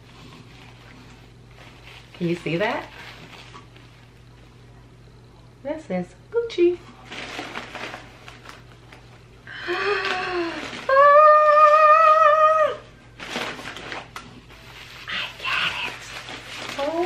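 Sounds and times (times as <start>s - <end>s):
fabric bag and paper rustling: 0.0s - 4.6s, 6.8s - 11.4s, 13.2s - 17.0s
falling ooh vocal: 9.8s - 12.9s.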